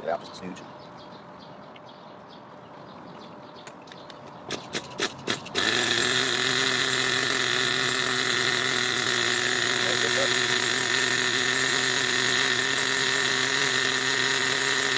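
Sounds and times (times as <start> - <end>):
model engine starting and idling: 4.5 - 14.9.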